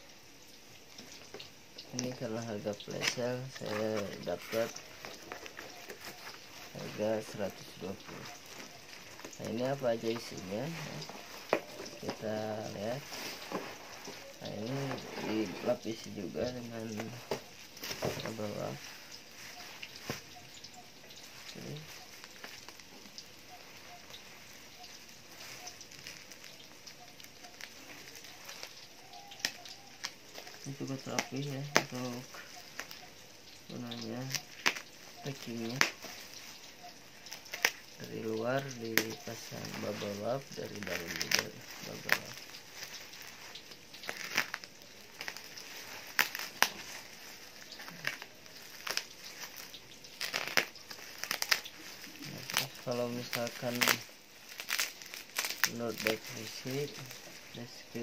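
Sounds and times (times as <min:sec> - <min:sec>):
plastic wrap crinkling: 0:00.0 - 0:58.0
sharp crackles: 0:00.0 - 0:58.0
knife cutting plastic: 0:02.8 - 0:20.3, 0:33.9 - 0:36.4, 0:37.3 - 0:57.3.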